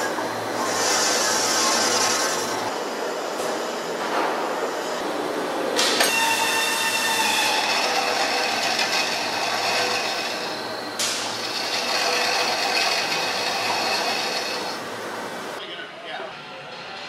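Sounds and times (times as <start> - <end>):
wheel spinning on rollers whirring: 6.0 - 15.0.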